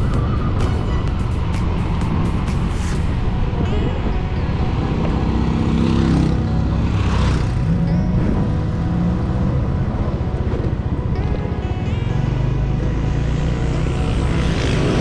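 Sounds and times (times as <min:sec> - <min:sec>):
background music: 0:00.0 - 0:15.0
road and wind noise: 0:00.0 - 0:15.0
motorbike engine running: 0:04.8 - 0:11.4.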